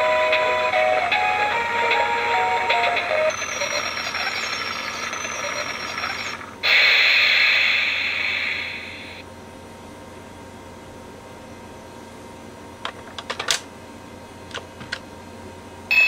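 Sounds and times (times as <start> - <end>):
toy train motor whirring: 3.3 - 9.0
loud steam-like hiss: 6.6 - 9.2.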